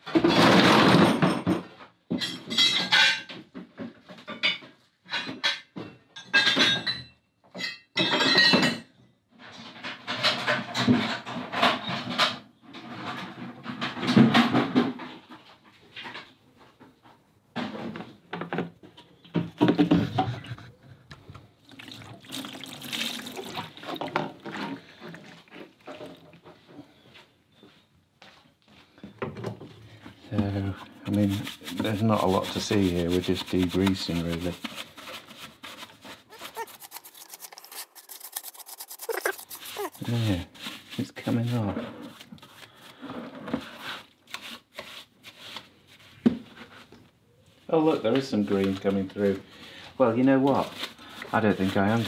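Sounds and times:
liquid pouring and splashing: 21.6 - 26.4, 36.4 - 40.9.

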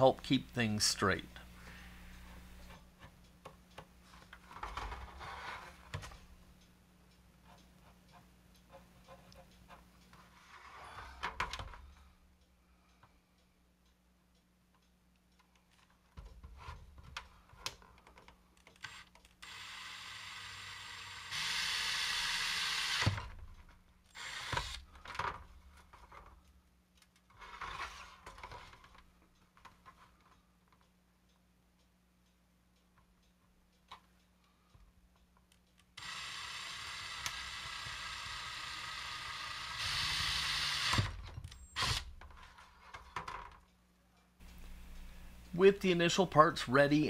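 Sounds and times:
cordless drill boring plastic: 18.8 - 23.4, 24.1 - 25.2, 36.0 - 42.2.

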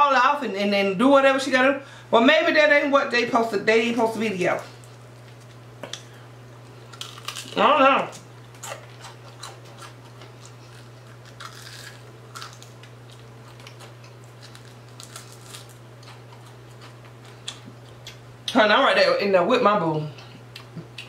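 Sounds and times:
crunchy chewing: 4.7 - 18.5.

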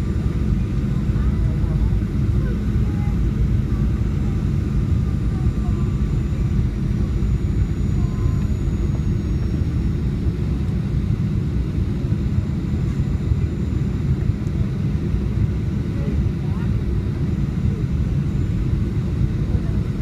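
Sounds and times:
low rumble of airflow and engines: 0.0 - 20.0.

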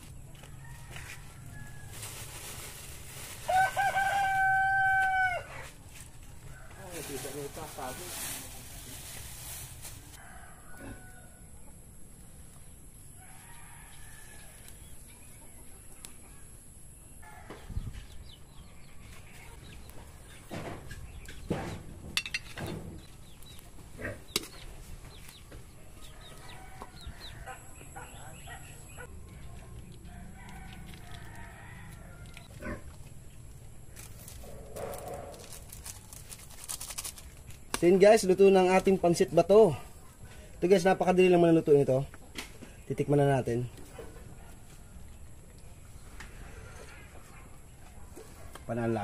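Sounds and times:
utensils clattering on frying pan: 22.1 - 22.7.

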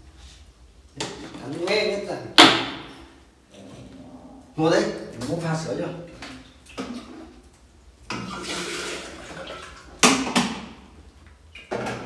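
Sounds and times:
tap water running into kettle: 8.1 - 10.5.

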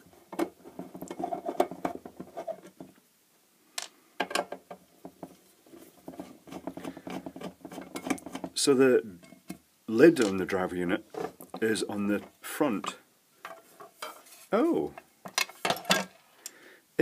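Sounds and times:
fingers tapping and scratching lid: 6.0 - 8.6.

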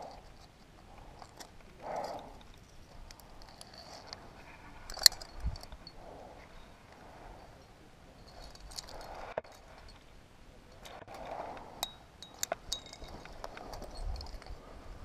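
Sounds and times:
climbing hardware clinking: 0.0 - 4.2, 4.8 - 6.0, 7.6 - 10.1, 10.7 - 14.6
climber breathing: 0.0 - 10.1, 10.8 - 15.0.

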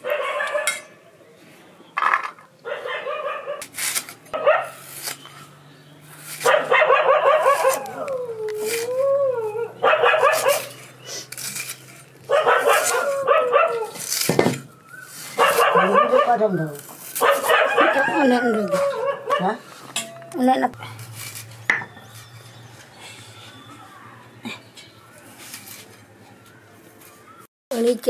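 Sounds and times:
dog yelping and whining: 6.4 - 10.8, 12.3 - 14.0, 14.9 - 19.6.

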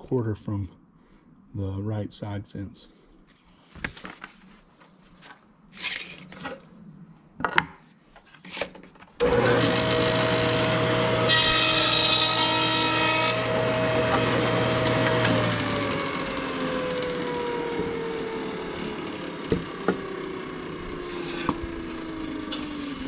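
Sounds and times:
saw blade cutting wood: 9.2 - 23.0
table saw humming: 9.2 - 23.0
knocks on table saw top: 19.5 - 20.0.

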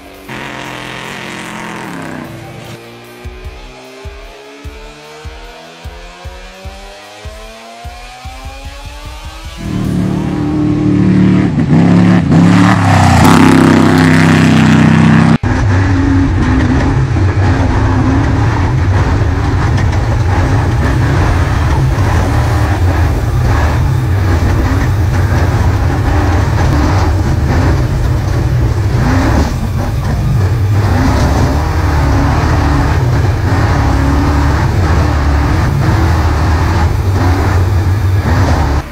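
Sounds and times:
truck engine revving: 0.0 - 3.2, 5.0 - 38.9
rattling and road noise: 0.0 - 38.9
engine running inside cab: 8.4 - 38.9.

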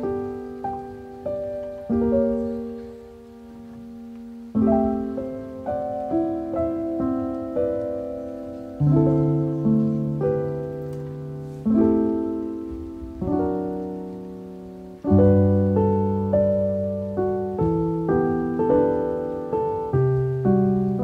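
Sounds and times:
slow piano chords: 0.0 - 21.0.

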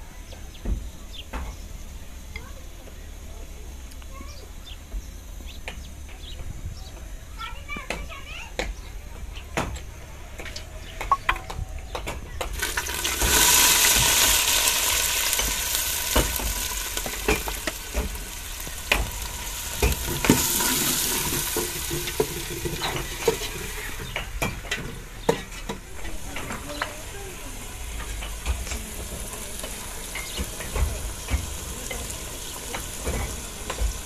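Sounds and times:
greens sizzling in hot oil: 12.4 - 34.0.

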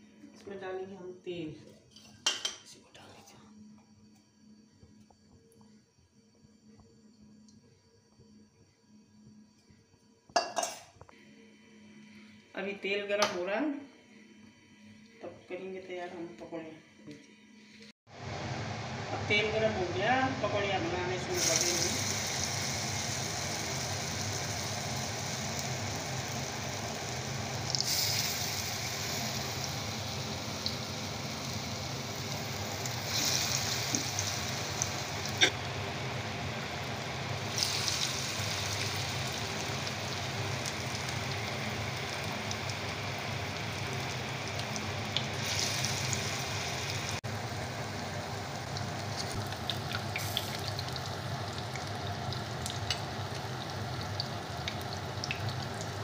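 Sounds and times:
fritters sizzling in hot oil: 21.3 - 56.0.

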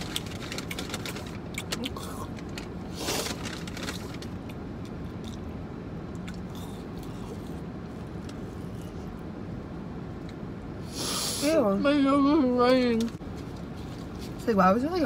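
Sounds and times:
paper packaging rustling: 0.0 - 1.5, 2.3 - 4.4
low rumble inside car: 0.0 - 15.0.

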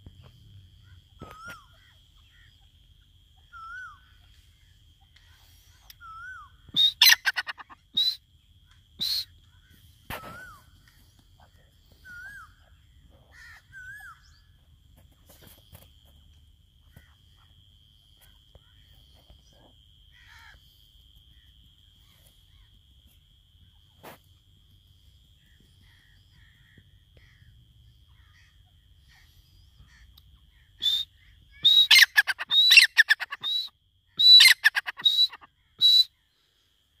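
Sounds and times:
francolin calling: 0.2 - 14.6, 25.1 - 36.7
soft whistled bird notes: 3.4 - 4.3, 5.8 - 8.2, 9.0 - 9.3, 29.6 - 36.2.

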